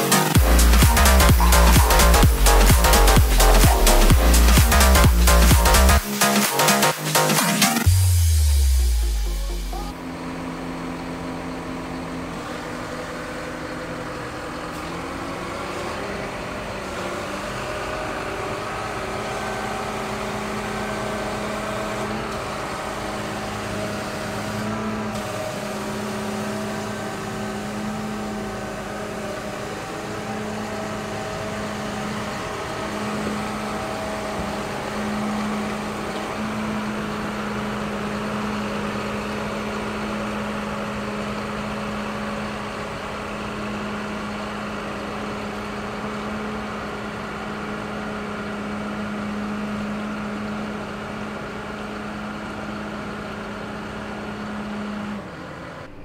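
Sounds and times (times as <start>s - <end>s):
tractor diesel engine running: 0.0s - 56.0s.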